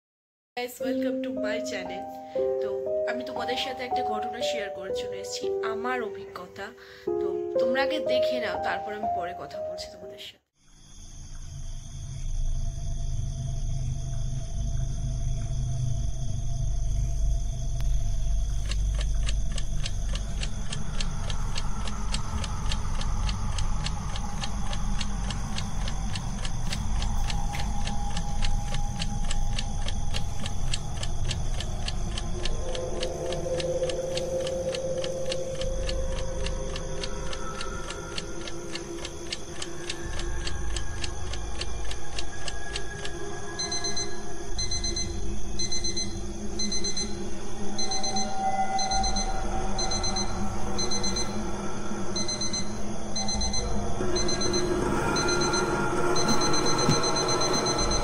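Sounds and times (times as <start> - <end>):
low droning tones: 11.5 - 58.0
clock ticking: 18.5 - 47.1, 52.2 - 58.0
alarm clock beeping: 18.6 - 47.2, 47.8 - 51.4, 52.1 - 58.0.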